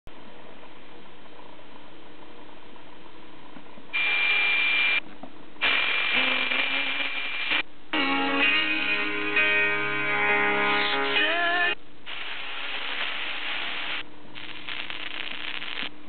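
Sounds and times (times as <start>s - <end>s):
radio static hiss: 4.0s - 5.0s, 5.6s - 7.7s, 12.0s - 16.0s.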